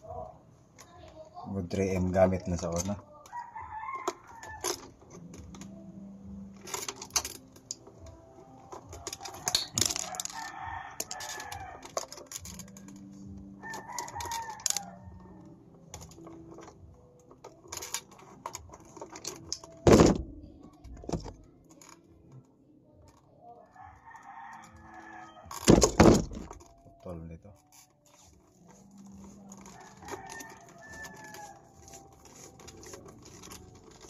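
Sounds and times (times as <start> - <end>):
pliers clicking on wire: 8.6 - 15.0, 15.9 - 19.8
loud thump: 19.9 - 20.3
rooster crowing: 23.6 - 25.6, 29.8 - 31.7.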